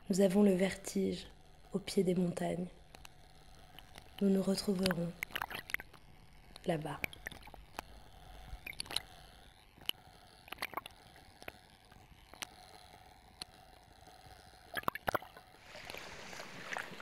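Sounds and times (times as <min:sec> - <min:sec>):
small water splashes and gurgles: 0:14.8 - 0:17.0
faint hiss: 0:15.6 - 0:17.0.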